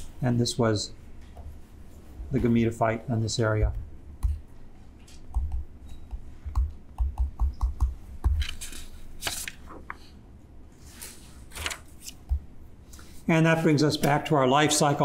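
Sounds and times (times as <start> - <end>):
stylus tapping on tablet screen: 5.3 - 8.4.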